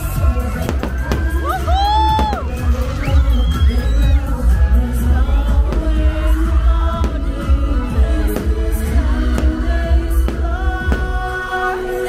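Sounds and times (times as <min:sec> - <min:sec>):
music with singing: 0:00.0 - 0:12.0
firework bangs: 0:05.6 - 0:11.5.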